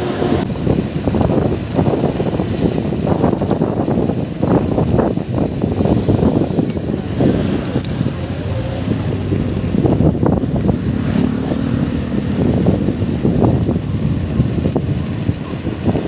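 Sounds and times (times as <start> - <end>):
road traffic noise: 0.0 - 16.0
wind rumbling on microphone: 0.0 - 16.0.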